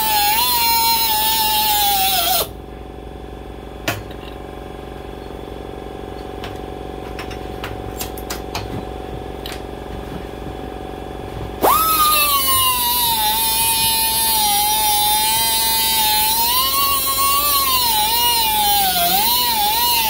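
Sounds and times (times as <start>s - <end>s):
air grinder whining: 0.0s - 2.6s, 11.6s - 20.0s.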